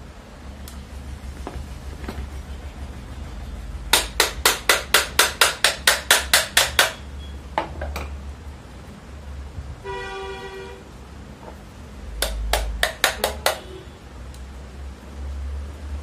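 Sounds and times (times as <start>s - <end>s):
hammer striking metal cover: 3.9s - 7.0s, 12.2s - 13.7s.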